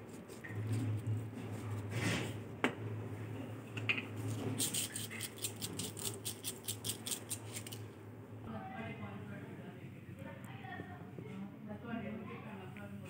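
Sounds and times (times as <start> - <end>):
steady low hum: 0.0 - 13.0
spice shaker rattling: 4.6 - 7.8.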